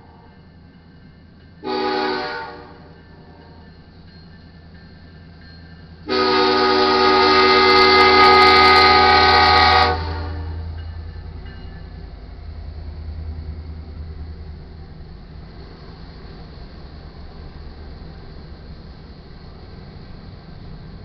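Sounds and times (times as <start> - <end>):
diesel locomotive rumble: 0.0 - 21.0
locomotive air horn blast: 1.6 - 2.9, 6.0 - 10.6.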